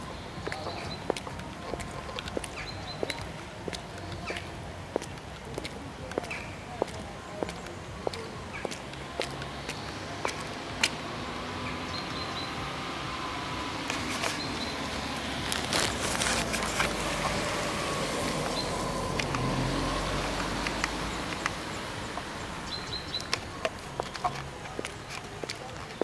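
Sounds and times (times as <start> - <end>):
distant car engine hum: 0.0 - 26.0
steady outdoor hiss: 0.0 - 26.0
rustling: 15.3 - 19.6.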